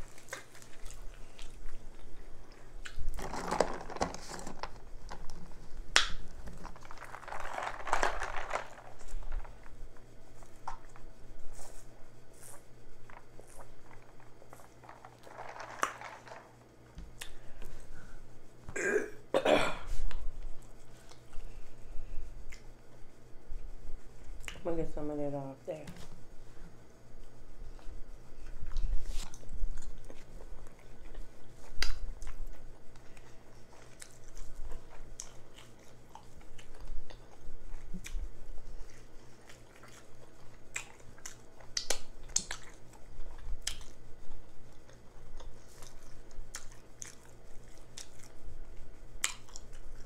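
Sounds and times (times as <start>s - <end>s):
loud throat sounds: 18.7s - 19.9s
chewing and lip-smacking: 22.4s - 22.7s, 28.4s - 44.0s, 44.7s - 50.0s.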